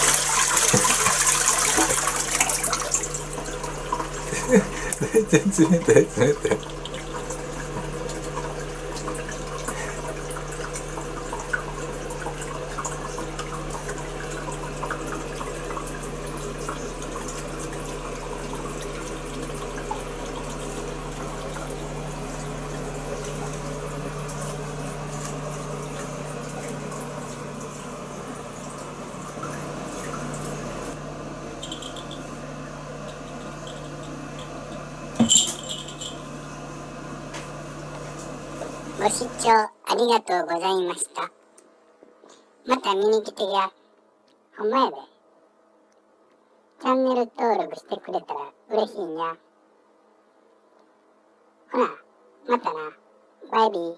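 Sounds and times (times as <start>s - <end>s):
water running into basin: 0.0s - 39.6s.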